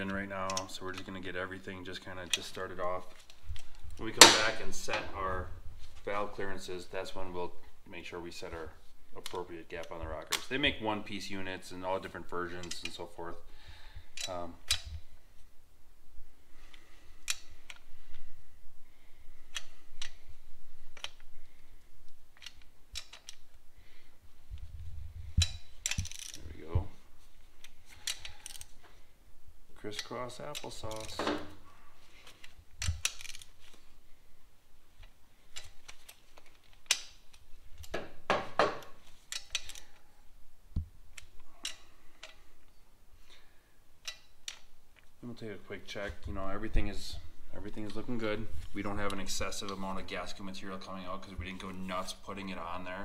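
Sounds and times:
socket wrench clicking on nuts: 0:22.4 - 0:23.4, 0:39.3 - 0:40.0, 0:41.2 - 0:42.4, 0:44.0 - 0:44.7.

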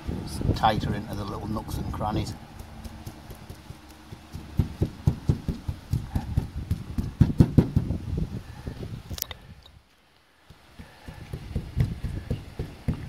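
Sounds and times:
paintbrush dabbing on metal roof: 0:00.8 - 0:08.6, 0:10.4 - 0:13.0.

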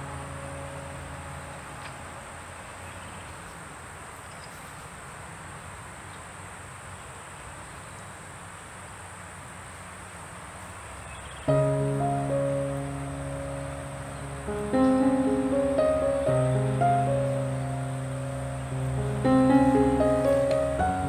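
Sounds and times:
music: 0:00.0 - 0:02.5, 0:11.5 - 0:21.0
piano note: 0:00.0 - 0:03.0, 0:11.5 - 0:21.0
soft hiss: 0:00.0 - 0:21.0.

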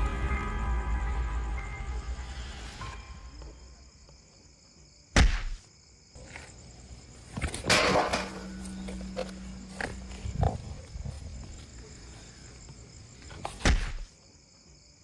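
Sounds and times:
low steady hum: 0:06.8 - 0:11.6.

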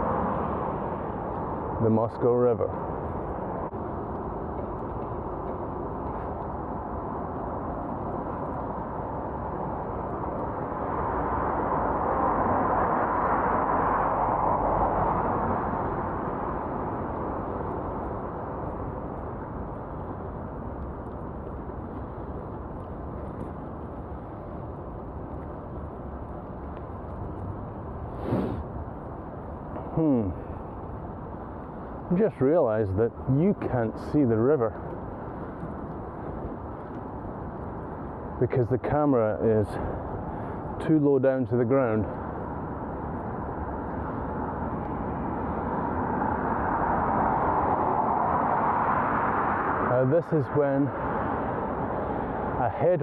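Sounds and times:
bicycle tyre noise: 0:17.1 - 0:30.3.

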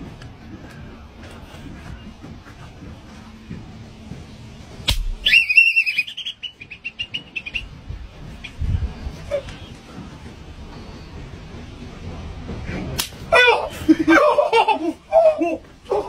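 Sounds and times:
sharp snap: 0:04.8 - 0:05.3, 0:13.0 - 0:13.3
high whistling tone and chirps: 0:05.2 - 0:09.8.

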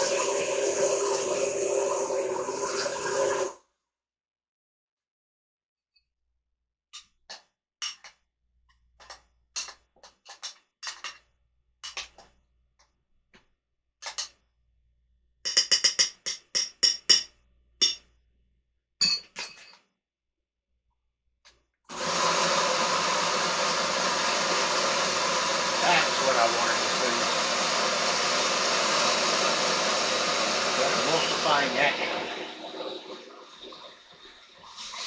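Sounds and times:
blender motor running: 0:00.0 - 0:03.5, 0:21.9 - 0:35.0.

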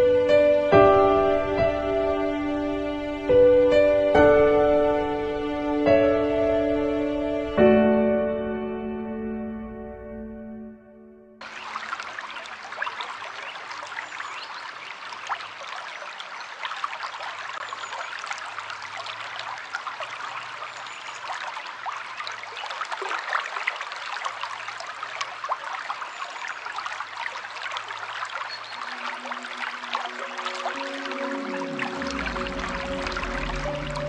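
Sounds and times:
water trickling and splashing: 0:11.4 - 0:34.0.

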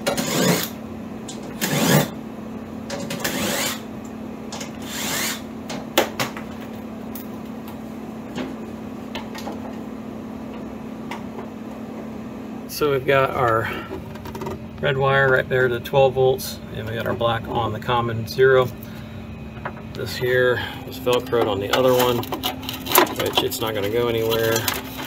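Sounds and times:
tools scraping on sheet metal: 0:00.0 - 0:02.1, 0:02.9 - 0:03.9, 0:04.6 - 0:05.5
steady low hum: 0:00.0 - 0:25.0.

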